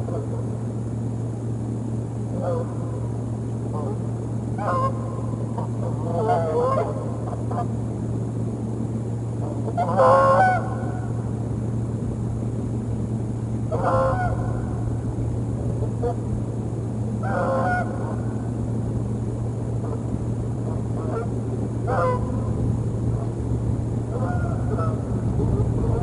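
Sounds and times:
steady low hum: 0.0s - 26.0s
geese honking: 2.4s - 2.9s, 4.6s - 7.7s, 9.4s - 11.2s, 13.7s - 14.8s, 15.8s - 16.2s, 17.2s - 18.5s, 19.8s - 20.1s, 20.7s - 22.4s, 24.1s - 26.0s.

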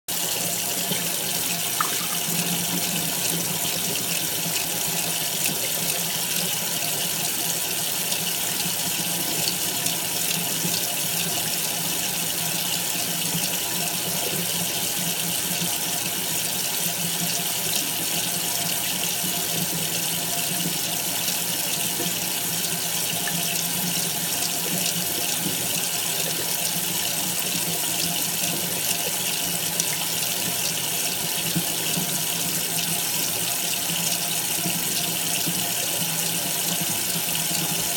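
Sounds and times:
tap water pouring onto fabric: 0.8s - 3.2s.

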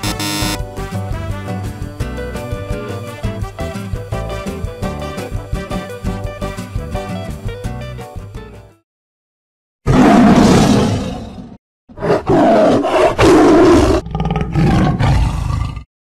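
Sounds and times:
lion roaring: 9.9s - 15.9s.

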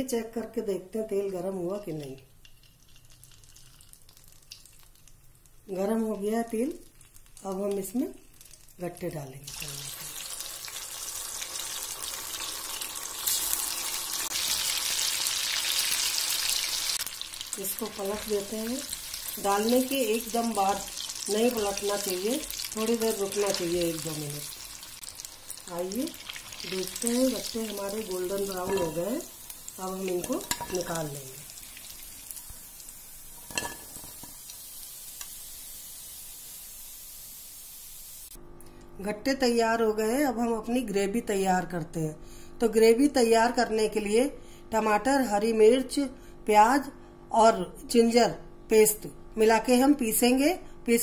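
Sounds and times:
food sizzling in hot oil: 1.7s - 5.8s, 6.7s - 38.4s.

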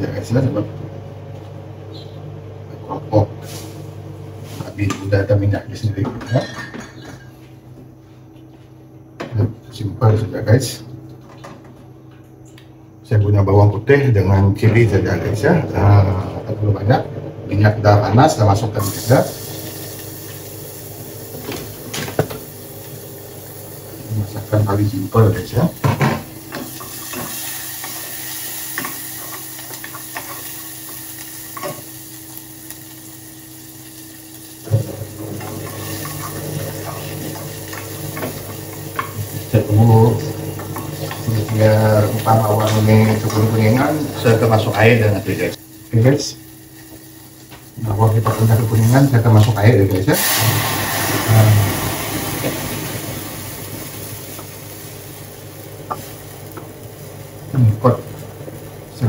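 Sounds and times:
low steady hum: 0.0s - 59.0s
garlic frying in hot oil: 18.8s - 58.9s.

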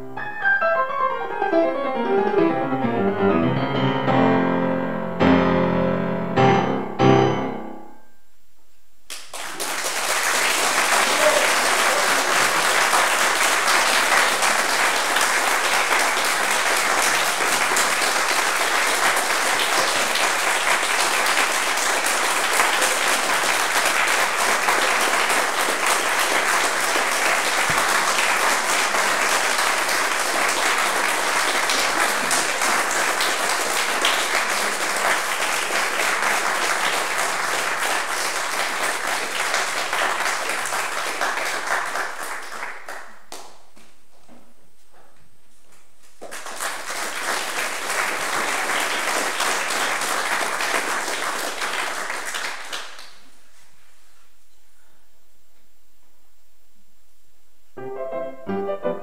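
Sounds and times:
grand piano chords: 0.0s - 8.4s, 57.8s - 59.0s
audience applause: 9.1s - 43.6s, 46.2s - 53.4s.

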